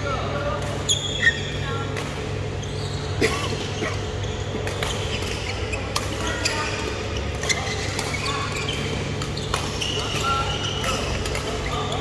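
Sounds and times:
steady low hum: 0.0 - 12.0
shoes squeaking on court floor: 0.4 - 12.0
racket hitting shuttlecock: 4.5 - 12.0.

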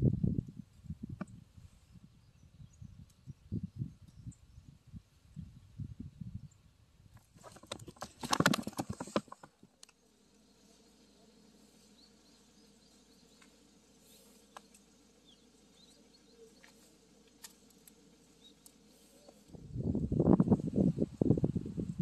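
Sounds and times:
rustling and clicking near microphone: 7.1 - 10.0.

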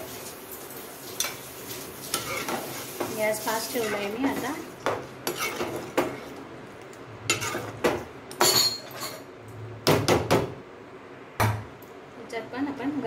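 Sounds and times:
spoon scraping metal pot: 3.8 - 4.1, 5.2 - 6.4, 7.3 - 7.8.

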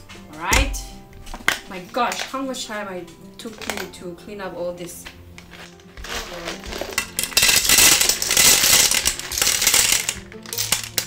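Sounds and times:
snail shells clattering in metal pot: 3.4 - 4.0, 4.8 - 11.0.

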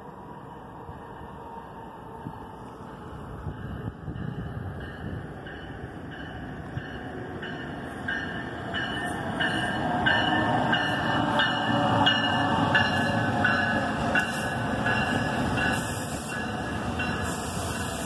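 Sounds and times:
train rumble: 0.0 - 18.0
locomotive bell ringing: 3.6 - 17.9.

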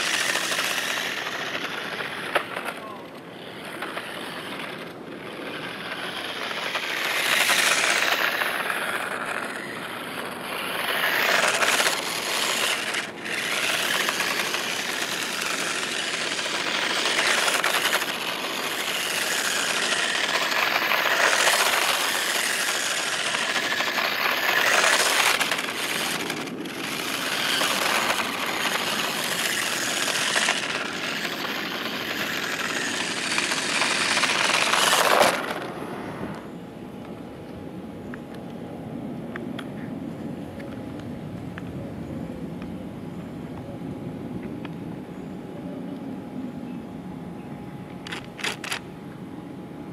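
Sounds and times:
toy car wheels rattling on asphalt: 0.0 - 36.5, 48.0 - 48.8.

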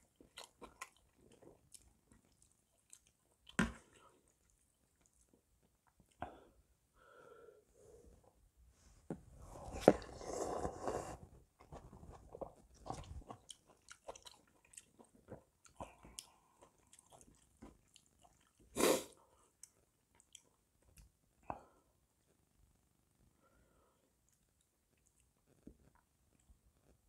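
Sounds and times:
wet chewing: 0.0 - 6.2, 11.7 - 18.7
slurping from a spoon: 9.5 - 11.4.

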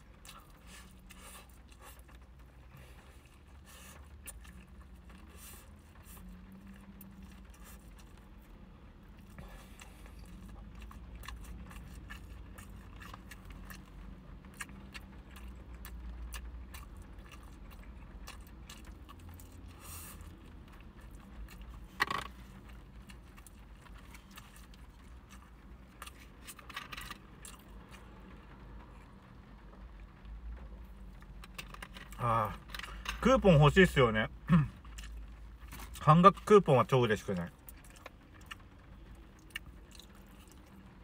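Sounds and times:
person chewing: 0.0 - 8.3, 9.1 - 28.0, 34.5 - 36.0, 37.6 - 40.8
low steady hum: 0.0 - 41.0.

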